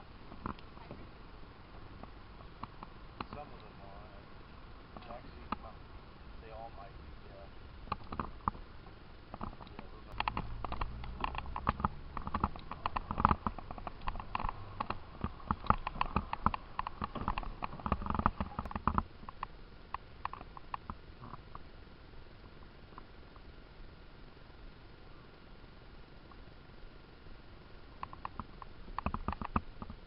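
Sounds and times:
small knocks and clicks: 0.3 - 1.1, 2.0 - 3.7, 7.9 - 8.6, 9.3 - 21.6, 28.0 - 30.0.

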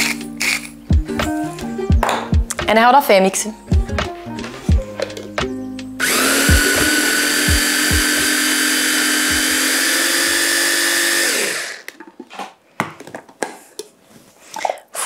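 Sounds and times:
mini chopper motor whining: 6.0 - 11.9.

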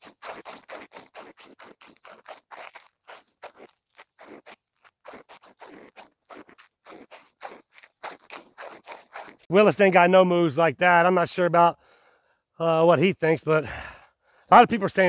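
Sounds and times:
shoe soles scraping on asphalt: 0.0 - 9.5.

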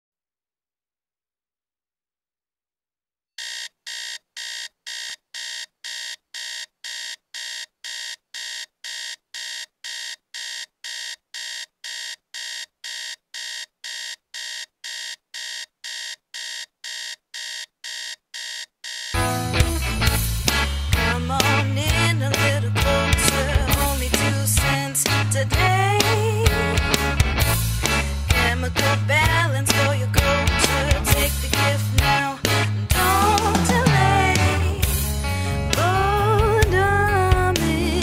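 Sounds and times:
alarm clock beeping: 3.4 - 19.3.

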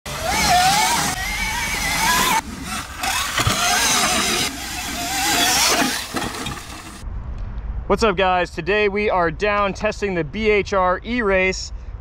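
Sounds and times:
electric motor whining: 0.1 - 7.0
tyre throwing up dirt: 2.7 - 7.0.

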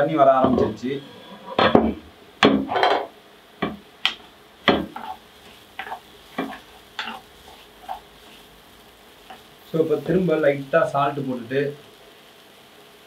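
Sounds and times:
low sizzle: 0.0 - 13.0
wooden spatula scraping a pan: 0.4 - 3.8, 4.6 - 10.2.

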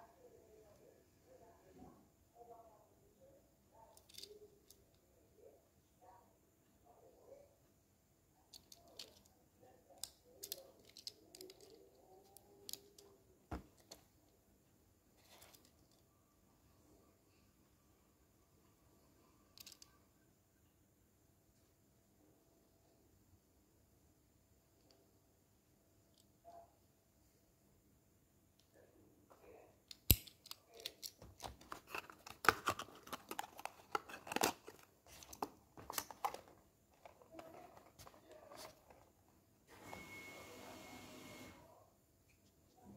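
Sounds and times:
clicks and taps of toy handling: 10.0 - 14.0, 19.6 - 19.9.

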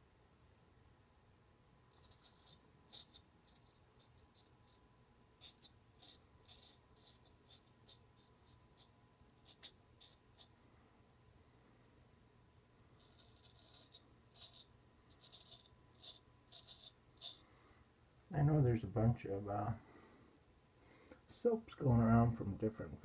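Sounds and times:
razor scraping stubble: 1.9 - 4.8, 5.4 - 10.5, 13.0 - 17.4.

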